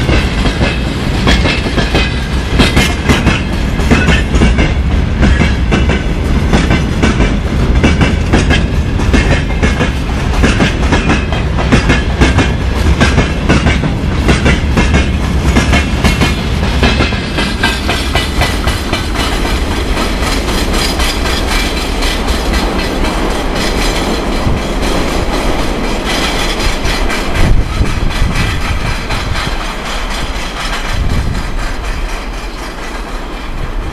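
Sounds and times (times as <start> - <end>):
train wheels clattering over rail joints: 0.0 - 33.9.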